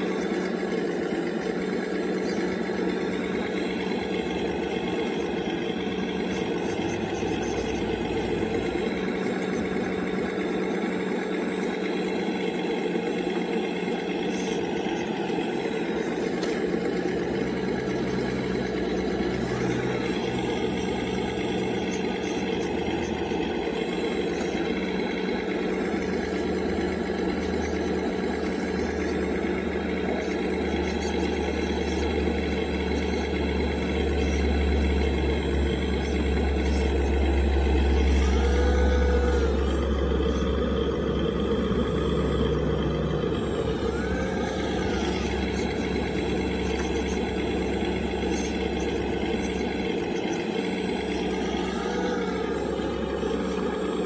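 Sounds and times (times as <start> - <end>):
hydraulic pump whine: 0.0 - 54.0.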